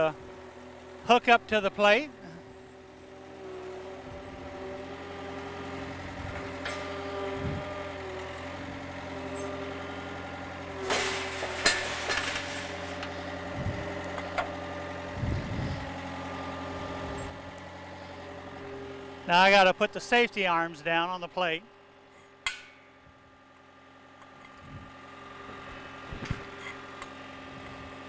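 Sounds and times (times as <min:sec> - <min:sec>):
skid loader engine running: 0:00.0 - 0:28.0
sharp metal clanks: 0:10.8 - 0:13.4, 0:22.4 - 0:22.9.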